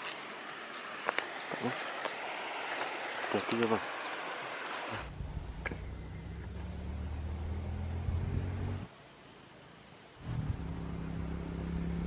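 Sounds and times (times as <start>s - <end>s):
low motor-like hum: 5.0s - 8.9s, 10.2s - 12.0s.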